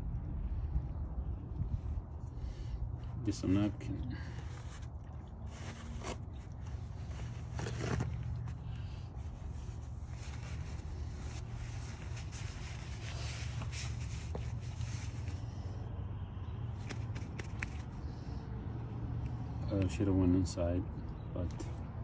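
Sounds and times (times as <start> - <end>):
steady low rumble: 0.0 - 19.7
paper towel rustling on metal: 4.2 - 15.4.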